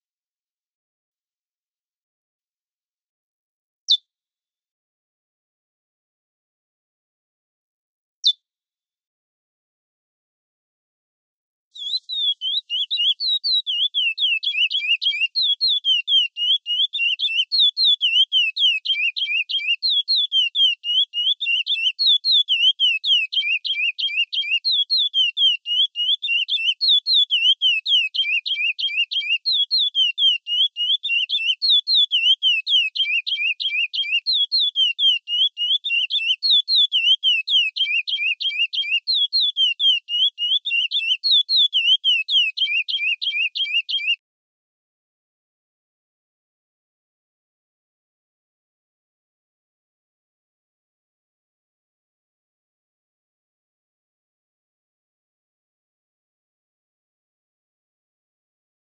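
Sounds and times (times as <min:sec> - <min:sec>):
finch singing whistled notes: 0:11.8 - 0:44.2.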